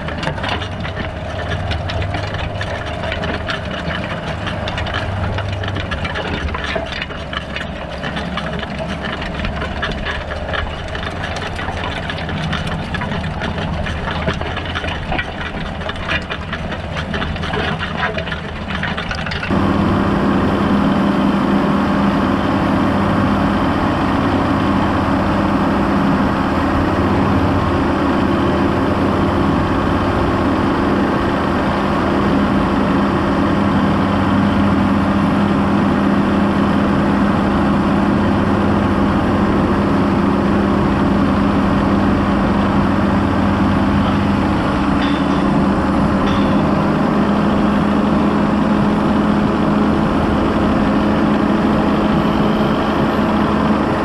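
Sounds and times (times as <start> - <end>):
cultivator tines clattering: 0.0 - 19.8, 33.1 - 54.0
tractor diesel engine under load: 0.0 - 54.0.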